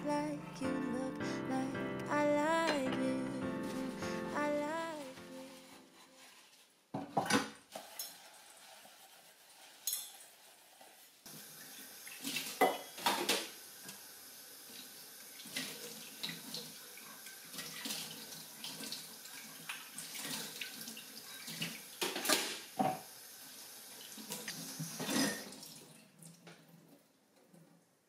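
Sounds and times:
tap water running into sink: 11.3 - 26.9
dishes clattering: 12.6 - 13.5, 22.0 - 23.0, 25.0 - 25.6.

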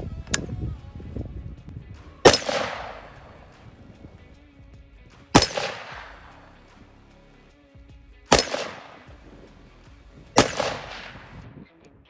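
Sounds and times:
rifle shots with echo: 2.2 - 4.1, 5.1 - 7.0, 8.3 - 11.6.

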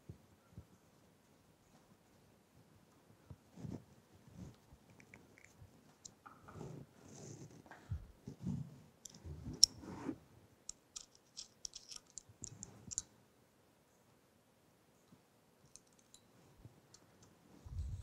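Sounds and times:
hex key clicking in screws: 10.7 - 13.0.

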